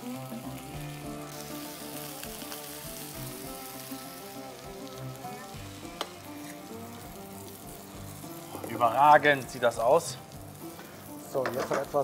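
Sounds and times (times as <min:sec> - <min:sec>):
background music: 0:00.0 - 0:12.0
food sizzling on a grill: 0:00.0 - 0:12.0.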